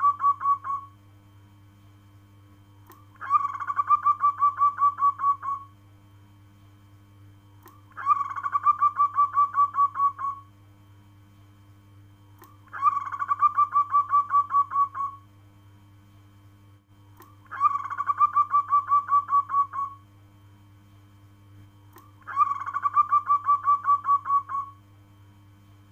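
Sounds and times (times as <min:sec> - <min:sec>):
dove cooing: 0:00.0 - 0:00.9, 0:03.2 - 0:05.7, 0:07.9 - 0:10.5, 0:12.7 - 0:15.2, 0:17.4 - 0:20.0, 0:22.2 - 0:24.8.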